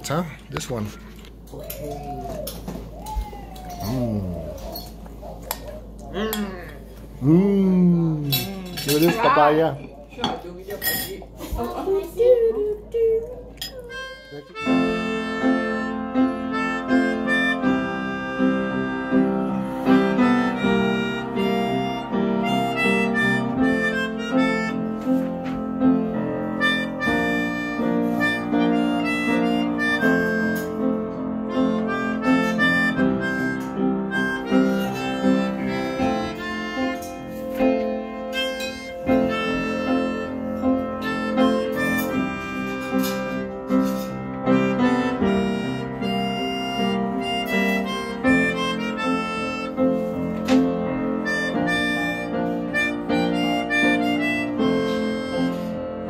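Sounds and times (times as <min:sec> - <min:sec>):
upright piano: 0:07.8 - 0:56.0
melodica: 0:13.8 - 0:56.0.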